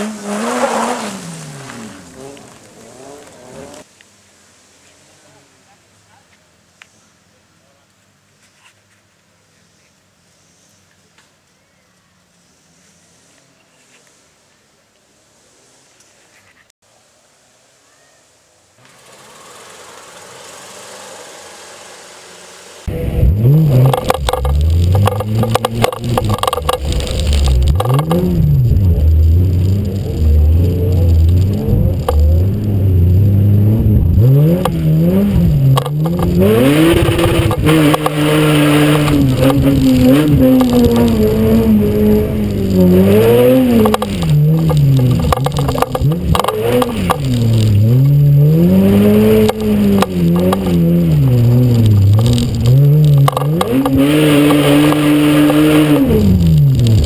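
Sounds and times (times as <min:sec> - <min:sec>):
car engine revving hard: 0:00.0 - 0:03.9, 0:18.8 - 0:57.0
tyres on dirt: 0:00.0 - 0:16.7, 0:18.7 - 0:57.0.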